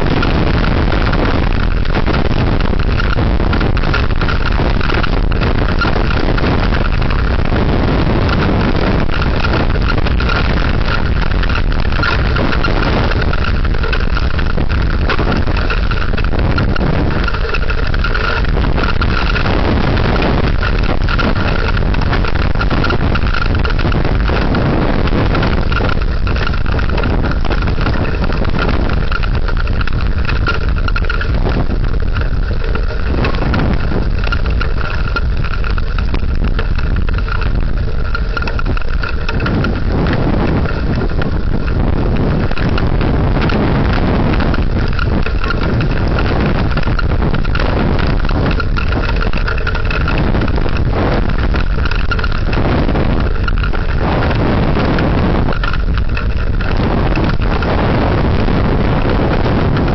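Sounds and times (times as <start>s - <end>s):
heavy rain: 0.0s - 59.9s
wind gusting against microphone: 0.0s - 59.9s.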